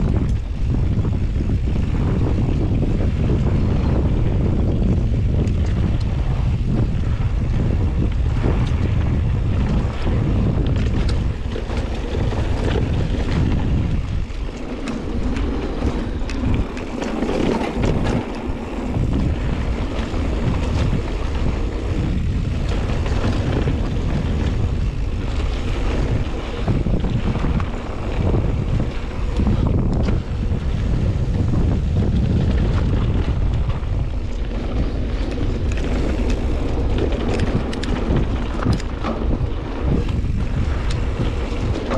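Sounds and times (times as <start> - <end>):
bike clicks and rattles: 0.0 - 41.9
bike tyre noise: 0.0 - 41.9
wind buffeting microphone: 0.0 - 41.9.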